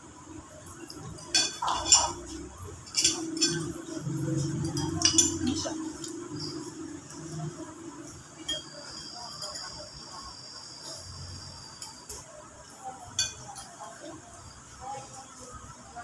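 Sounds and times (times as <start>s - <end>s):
cutlery clinking against ceramic bowls: 0.6s - 10.2s, 13.0s - 14.0s.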